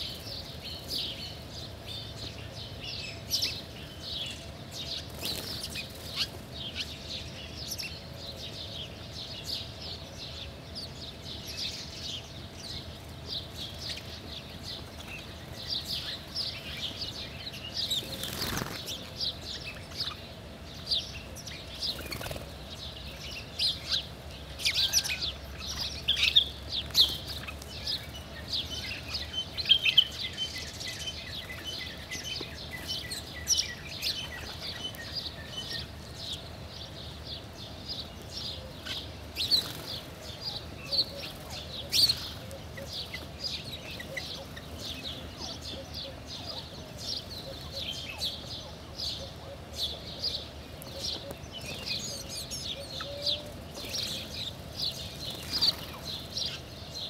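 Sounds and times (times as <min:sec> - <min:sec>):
sparrows chirping: 0:00.0 - 0:57.0
bird wing flutters: 0:18.0 - 0:19.0.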